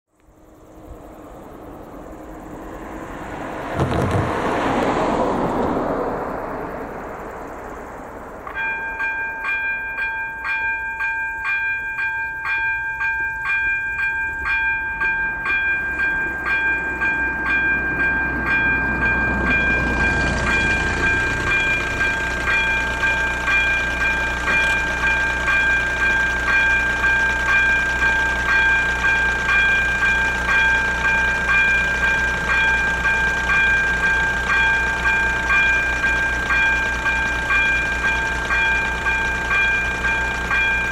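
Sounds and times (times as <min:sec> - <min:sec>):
low engine rumble: 0:00.1 - 0:40.9
car passing: 0:00.3 - 0:09.2, 0:15.0 - 0:39.8
level crossing warning bell: 0:08.4 - 0:40.9.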